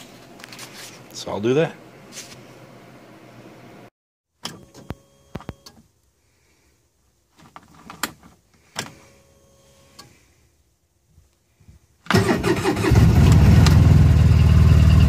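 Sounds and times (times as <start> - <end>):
engine cranking and idling: 12.1 - 15.0.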